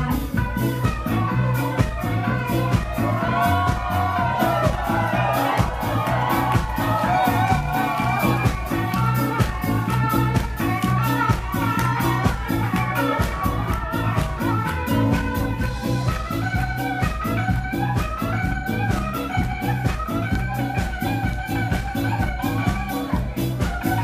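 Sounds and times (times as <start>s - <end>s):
bass notes: 0.0s - 24.0s
drums: 0.0s - 24.0s
ska band playing: 0.0s - 24.0s.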